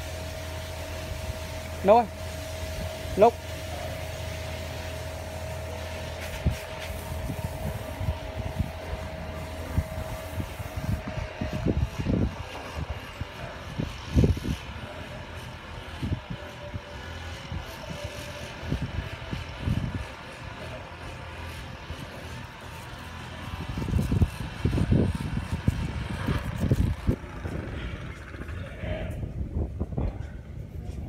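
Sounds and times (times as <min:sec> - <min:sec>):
vehicle engine whining: 0:00.0 - 0:29.9
low thumps and rumbles: 0:23.7 - 0:31.0.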